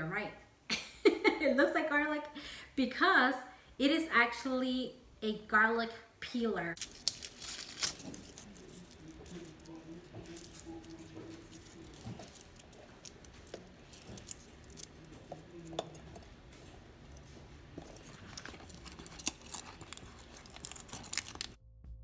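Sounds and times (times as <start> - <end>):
garlic skins crackling: 6.8 - 21.6.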